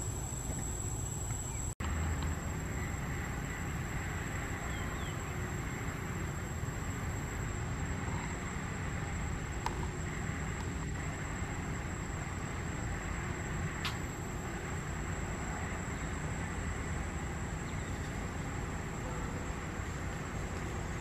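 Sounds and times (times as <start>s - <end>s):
high whine: 0.0s - 21.0s
low rumble and hiss: 0.0s - 21.0s
faint ticks: 13.8s - 14.2s.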